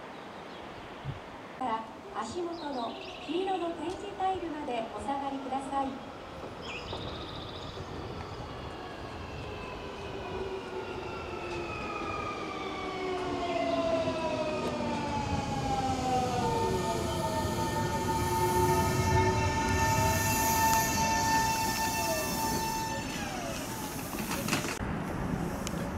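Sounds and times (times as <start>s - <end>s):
steady high tone: 11.1s - 24.0s
electric train motor whine: 11.2s - 24.8s.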